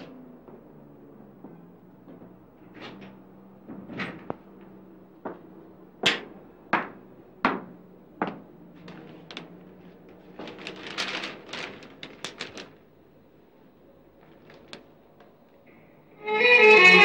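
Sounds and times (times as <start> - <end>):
newspaper rustling: 8.8 - 13.3, 14.1 - 15.4.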